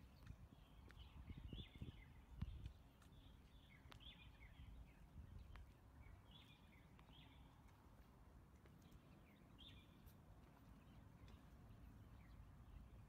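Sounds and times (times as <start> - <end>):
birds chirping: 8.8 - 13.0.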